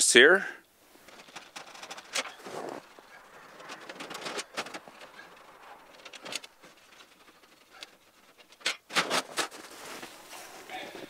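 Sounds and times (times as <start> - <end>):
sheet-metal panel rattling: 1.0 - 9.9.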